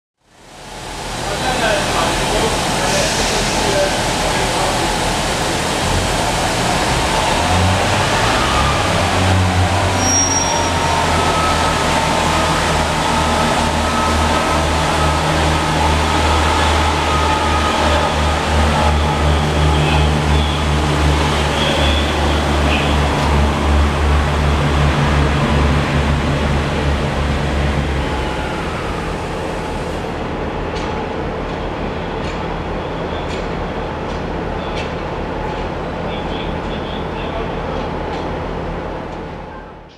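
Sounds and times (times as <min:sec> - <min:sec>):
diesel train engine rumbling: 0:00.4 - 0:39.9
steady engine whine: 0:03.7 - 0:30.4.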